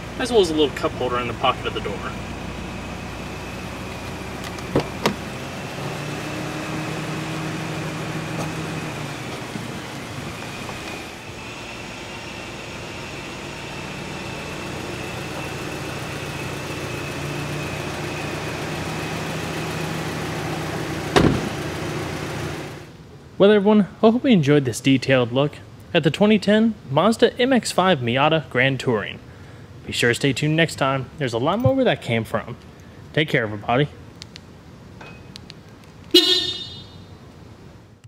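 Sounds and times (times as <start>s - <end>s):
car door shutting thud: 4.5s - 5.2s, 21.1s - 21.6s.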